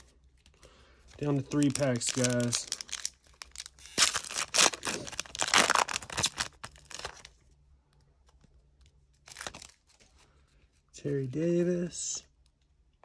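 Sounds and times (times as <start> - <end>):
foil wrapper tearing and crinkling: 1.2 - 7.3, 9.3 - 9.8.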